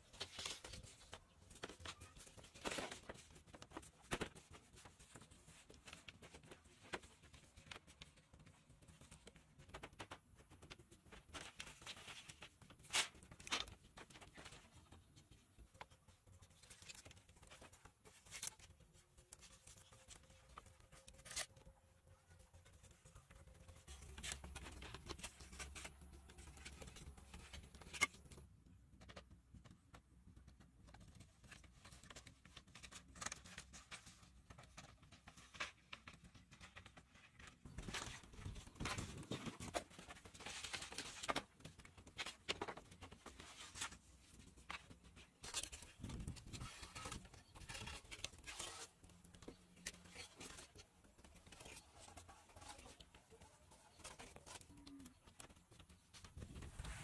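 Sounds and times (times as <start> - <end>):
bamboo poles clicking and scraping: 19.3 - 21.7, 23.3 - 28.4, 34.8 - 57.0.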